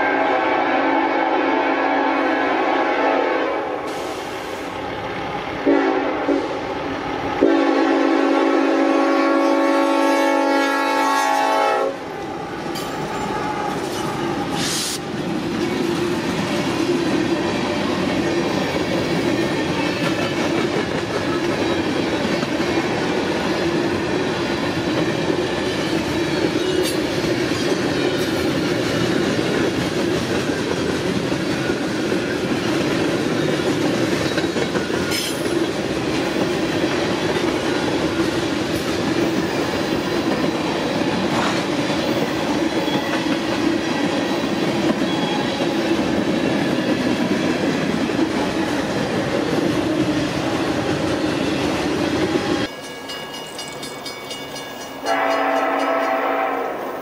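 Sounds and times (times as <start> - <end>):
train horn blasts: 0.0 - 4.1, 5.6 - 6.6, 7.4 - 12.1, 55.0 - 57.0
train cars rumbling past: 0.0 - 57.0.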